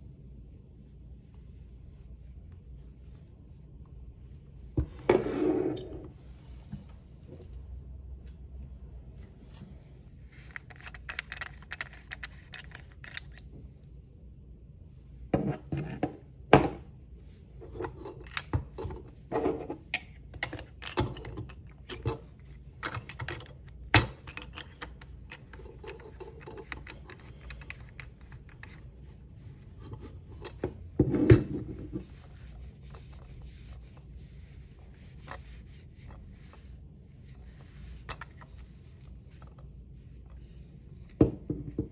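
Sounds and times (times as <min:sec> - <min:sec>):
gloved hands rubbing plastic: 0:24.8 - 0:31.0, 0:31.7 - 0:41.2.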